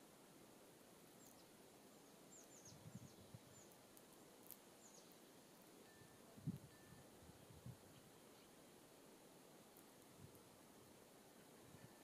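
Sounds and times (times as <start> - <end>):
songbirds calling: 1.0 - 8.9.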